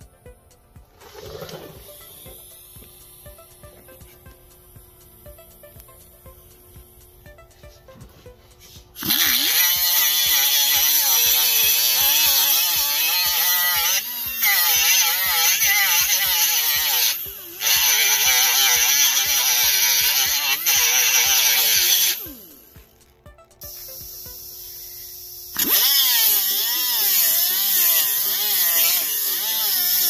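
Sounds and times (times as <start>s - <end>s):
cut-off tool grinding steel: 8.3s - 22.8s, 25.0s - 30.0s.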